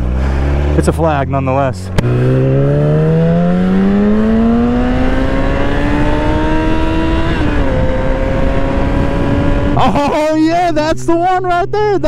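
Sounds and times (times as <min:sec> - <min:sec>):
motorcycle engine accelerating: 0:00.0 - 0:12.0
wind on microphone: 0:03.6 - 0:09.8.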